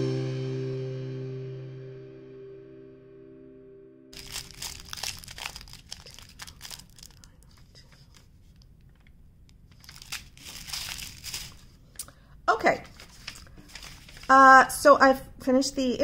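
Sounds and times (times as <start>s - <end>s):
plastic bags crinkling: 4.2s - 11.9s, 12.7s - 14.7s.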